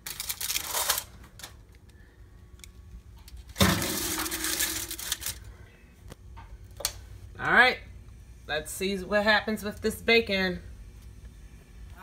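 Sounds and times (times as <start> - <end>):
foil crinkle: 0.0 - 1.6, 3.3 - 5.5.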